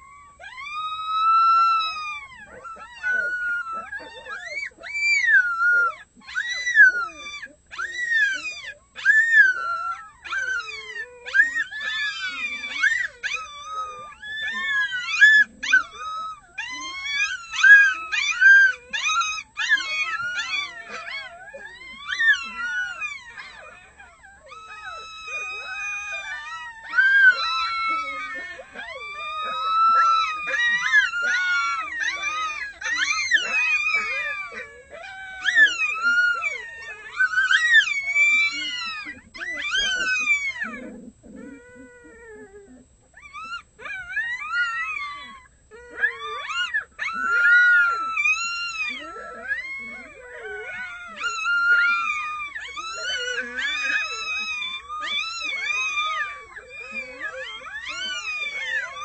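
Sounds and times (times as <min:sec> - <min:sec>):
wolf pups yipping and howling: 0:00.0 - 0:59.0.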